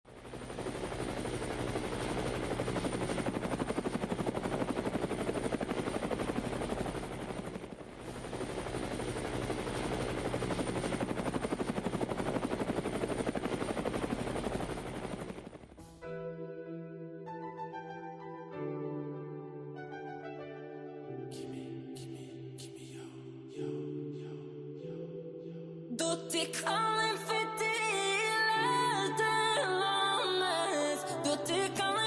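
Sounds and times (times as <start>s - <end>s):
helicopter rotor chop: 0.1s - 15.8s
music with piano and horn: 15.8s - 21.9s.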